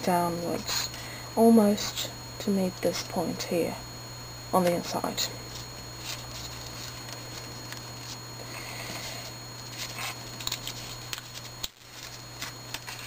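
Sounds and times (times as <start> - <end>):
steady low hum: 0.0 - 13.0
paper rustling and crinkling: 5.5 - 13.0.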